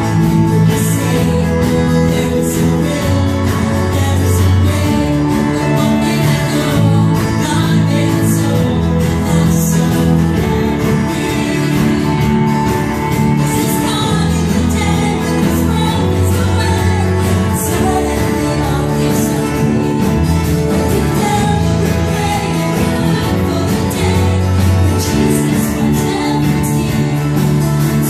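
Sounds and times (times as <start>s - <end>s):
band with guitars and drums: 0.0s - 28.0s
women singing: 0.2s - 28.0s.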